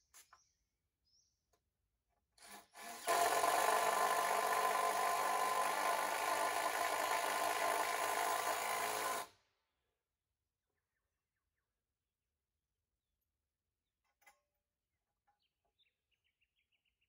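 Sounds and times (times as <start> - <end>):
power drill drilling into wood: 2.4 - 9.3.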